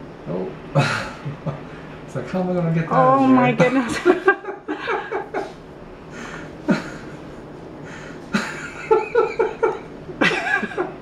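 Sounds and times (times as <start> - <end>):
person breathing: 6.1 - 6.7, 7.8 - 8.3.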